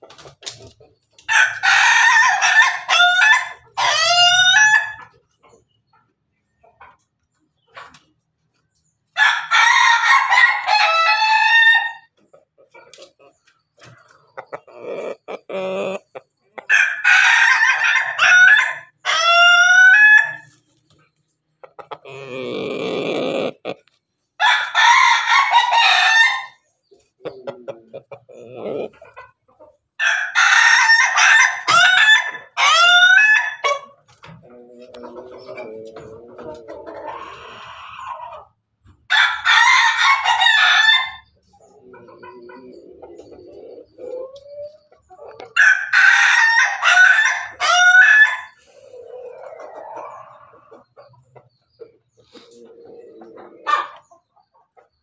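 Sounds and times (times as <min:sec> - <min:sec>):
chicken clucking: 0:00.0 - 0:55.0
rooster crowing: 0:16.7 - 0:20.5, 0:24.4 - 0:26.6, 0:30.0 - 0:33.8, 0:45.6 - 0:48.6.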